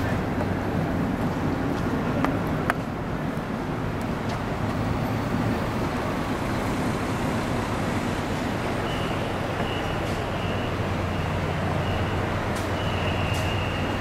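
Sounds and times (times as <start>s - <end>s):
buses and cars idling in traffic: 0.0s - 14.0s.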